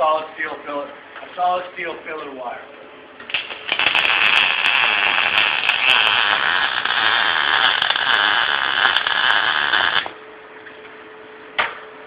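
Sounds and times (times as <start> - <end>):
faint steady hum: 0.0 - 12.0
welding arc crackling: 3.2 - 10.2.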